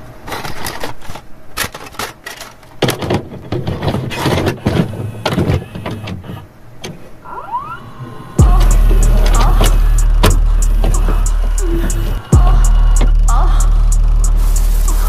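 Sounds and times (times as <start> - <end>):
rising glide: 7.2 - 15.0.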